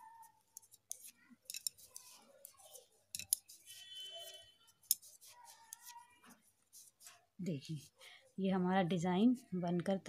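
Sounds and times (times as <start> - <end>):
knitting needles clicking: 0.0 - 7.2.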